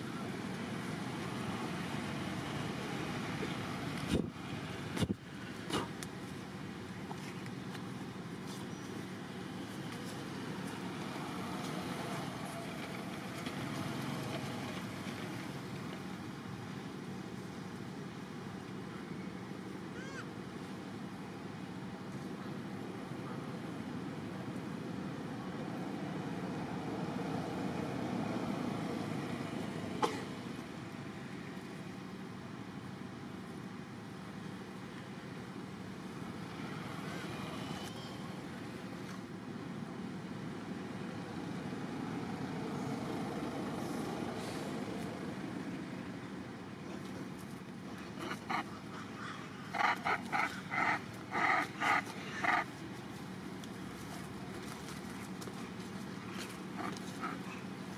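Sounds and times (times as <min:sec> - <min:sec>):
outdoor rumble and hiss: 0:00.0 - 0:57.9
animal giving sharp calls: 0:48.1 - 0:52.7.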